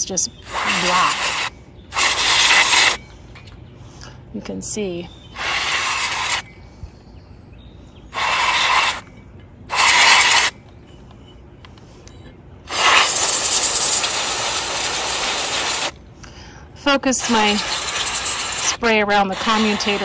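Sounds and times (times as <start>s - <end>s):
aerosol spray hissing: 0.5s - 3.0s, 5.4s - 6.4s, 8.2s - 9.0s, 9.7s - 10.5s, 12.7s - 15.9s, 17.2s - 20.0s.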